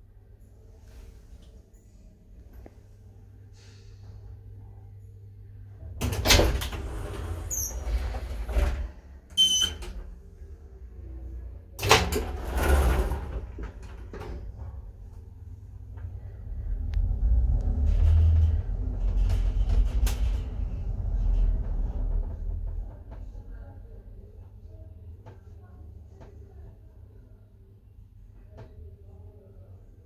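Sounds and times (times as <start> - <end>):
elevator doors sliding: 5.8 - 10.5, 11.8 - 23.6.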